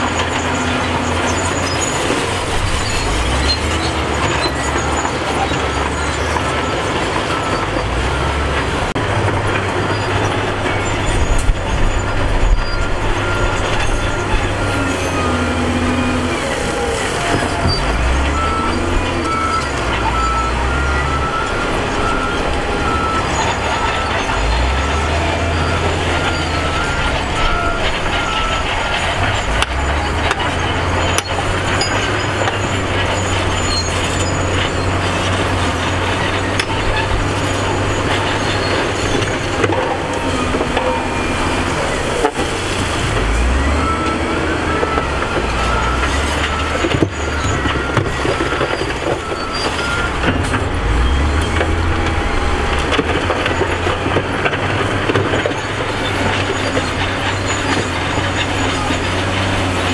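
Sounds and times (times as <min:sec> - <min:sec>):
diesel engine under load: 0:00.0 - 0:59.9.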